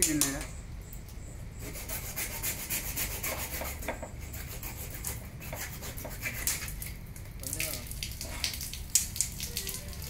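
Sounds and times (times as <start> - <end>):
hacksaw cutting plastic pipe: 1.6 - 6.7.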